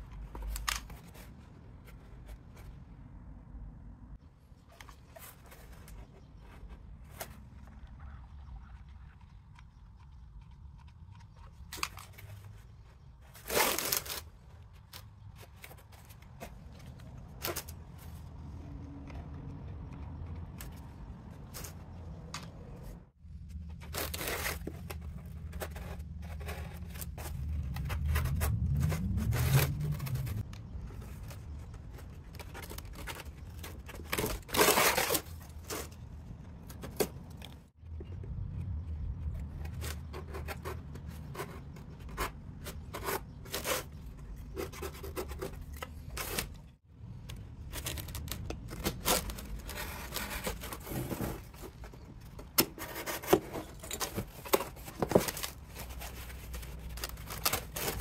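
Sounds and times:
cardboard scraping and rustling: 4.6 - 7.8, 20.6 - 37.7, 47.6 - 58.0
cardboard tearing rasps: 13.3 - 16.4, 23.8 - 30.4, 32.3 - 36.0, 47.7 - 58.0
low hum: 24.8 - 31.8.

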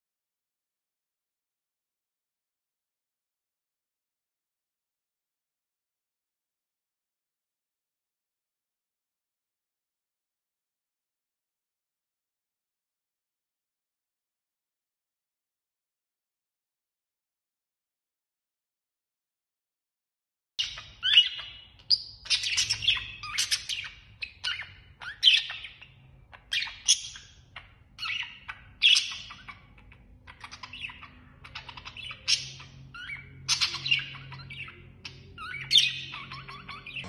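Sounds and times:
budgerigars chirping: 20.6 - 37.0.

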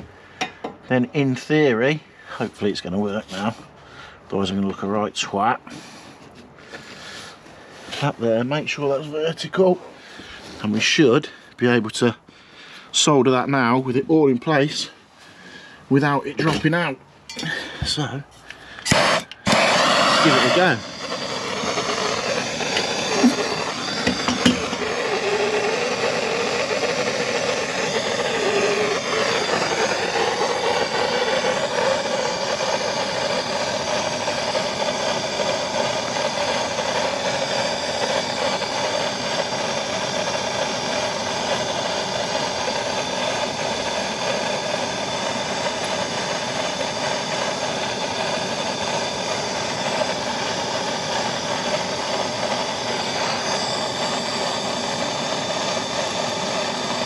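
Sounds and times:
blowtorch flame burning: 15.9 - 57.0.

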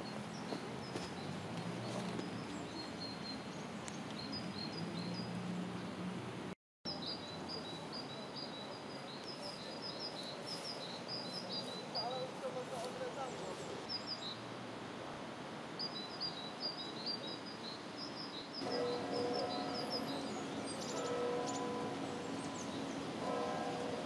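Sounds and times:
small birds chirping: 0.0 - 6.0, 6.9 - 14.4.

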